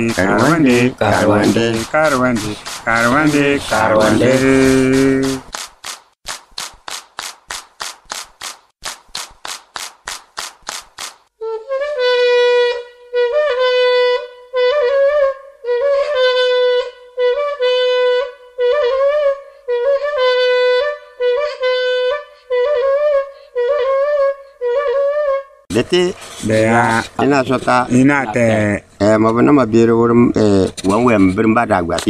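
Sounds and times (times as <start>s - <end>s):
wind instrument playing: 0.0s - 5.5s, 11.4s - 26.8s
dry rhythmic rattling: 0.0s - 11.4s.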